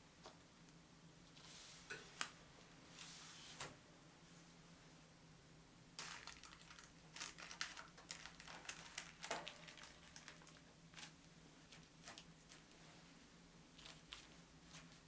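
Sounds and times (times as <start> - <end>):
baking parchment crinkling: 6.0 - 12.8, 13.7 - 15.0.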